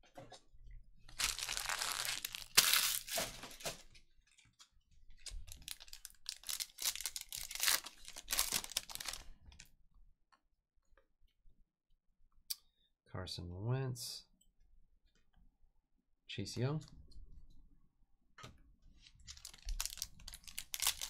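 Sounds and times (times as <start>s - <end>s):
foil wrapper crinkling: 1.1s - 3.8s, 5.2s - 9.3s, 19.3s - 21.0s
foil wrapper tearing: 1.2s - 3.7s, 5.4s - 9.3s, 19.3s - 21.0s.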